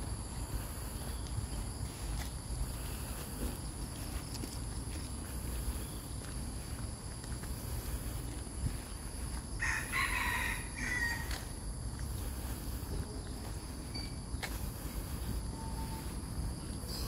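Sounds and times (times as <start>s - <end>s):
rooster crowing: 9.6s - 11.4s.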